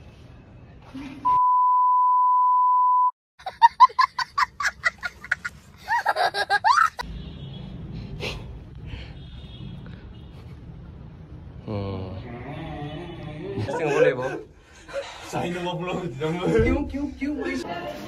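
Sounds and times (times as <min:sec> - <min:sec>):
steady beep tone: 0:01.3 - 0:03.1
boy laughing: 0:03.4 - 0:07.0.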